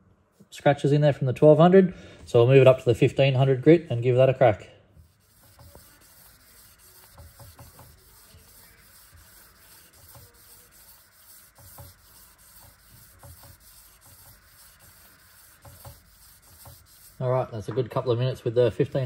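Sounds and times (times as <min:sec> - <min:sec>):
sandpaper rubbing on metal: 0:05.0 - 0:17.7.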